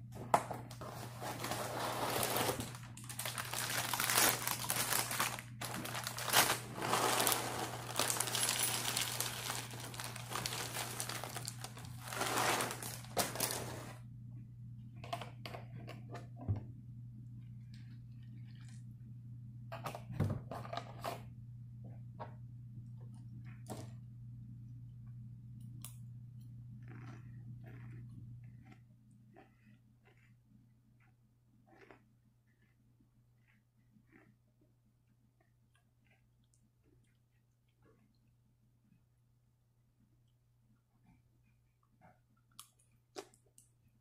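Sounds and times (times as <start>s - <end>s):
plastic bag crinkling: 0.8s - 14.0s
cereal pouring into bowl: 1.2s - 13.9s.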